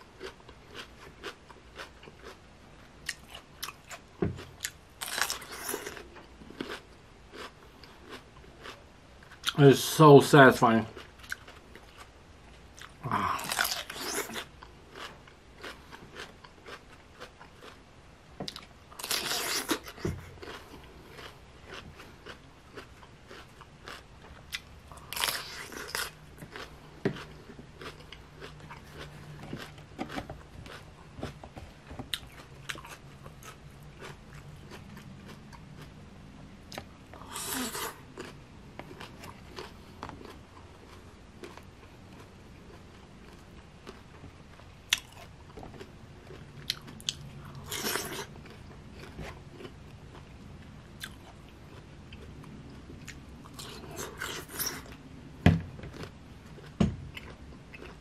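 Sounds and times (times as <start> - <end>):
chewing: 3.0 - 9.6, 11.0 - 12.1, 12.7 - 17.8, 18.5 - 31.4, 32.1 - 36.0, 36.7 - 50.3, 51.0 - 55.0, 55.9 - 58.0
crunching bites: 12.8 - 16.9, 18.5 - 31.4, 55.9 - 56.1.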